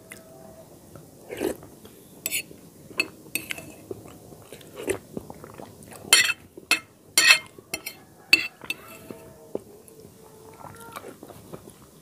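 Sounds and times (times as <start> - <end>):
spoon clinking against bowl: 3.0 - 3.8, 6.1 - 9.0.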